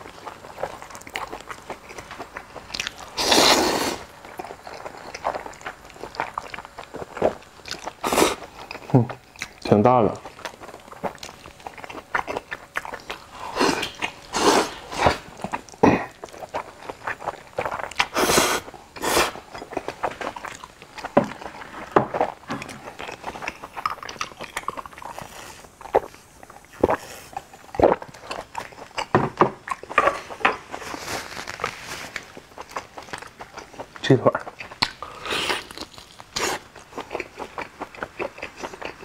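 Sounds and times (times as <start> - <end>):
slurping noodles: 3.1 - 4.1, 13.4 - 15.3, 18.0 - 19.4
chewing and wet mouth smacks: 4.3 - 14.4, 32.3 - 39.0.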